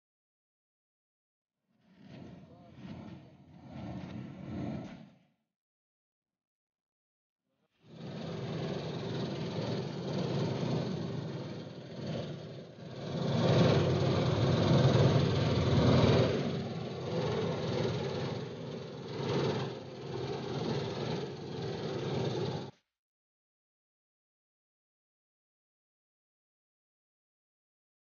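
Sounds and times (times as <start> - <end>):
combine harvester engine and threshing: 8.0 - 22.7.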